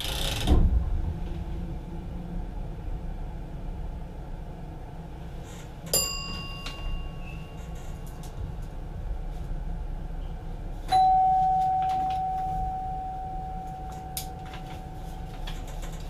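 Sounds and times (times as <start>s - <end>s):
train cab running rumble: 0.0s - 16.0s
bell ding: 5.9s - 7.6s, 10.9s - 15.3s.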